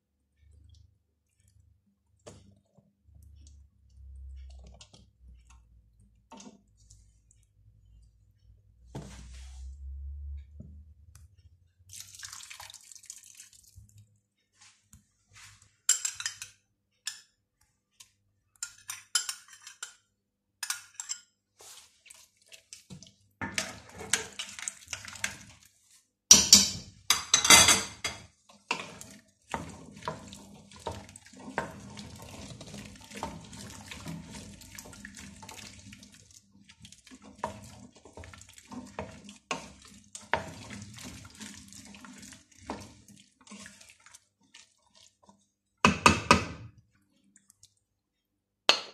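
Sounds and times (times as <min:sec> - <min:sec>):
wet squishing and sloshing: 0:00.1 - 0:10.0, 0:11.0 - 0:15.8, 0:21.4 - 0:26.3, 0:28.2 - 0:48.2
spoon clinking against metal pot: 0:15.9 - 0:17.3, 0:18.6 - 0:20.0, 0:20.6 - 0:21.3, 0:26.3 - 0:28.2.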